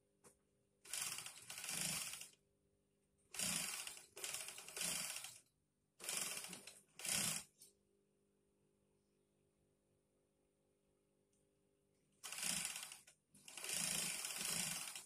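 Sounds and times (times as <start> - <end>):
sewing machine needle clatter: 0.9 - 2.4, 3.4 - 5.4, 6.0 - 7.6, 12.2 - 15.0.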